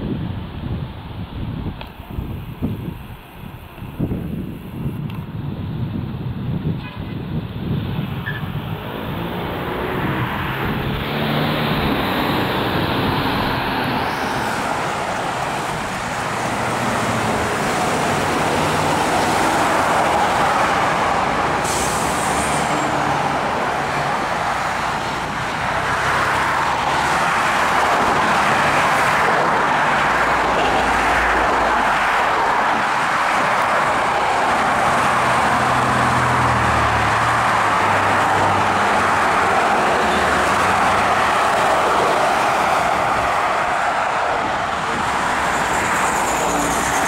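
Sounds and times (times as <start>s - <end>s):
car engines and tyres: 0.0s - 47.0s
passing traffic rush: 0.0s - 47.0s
semi truck: 0.0s - 47.0s
brief high hiss: 21.6s - 22.7s.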